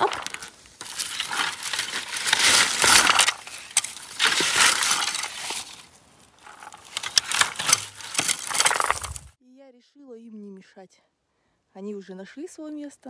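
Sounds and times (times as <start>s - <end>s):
plastic rake scraping shrubs: 0.0s - 9.3s.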